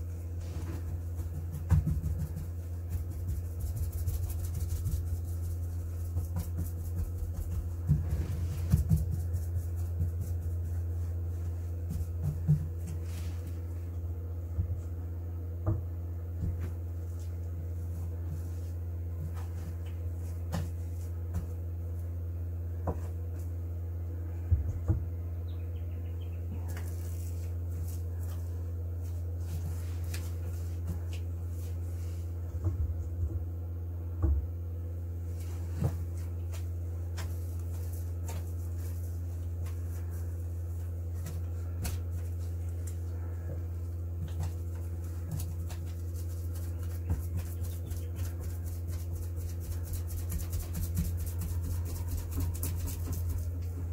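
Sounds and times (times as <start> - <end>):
steady low hum: 0.0 - 53.9
brush knocking and tapping: 0.9 - 5.0.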